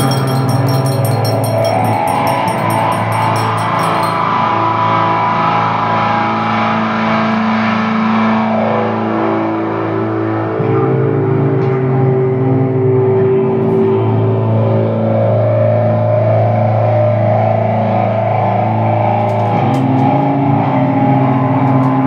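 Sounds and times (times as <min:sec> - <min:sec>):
high shaking rhythm: 0:00.0 - 0:04.2
electric guitar drone music: 0:00.0 - 0:22.0.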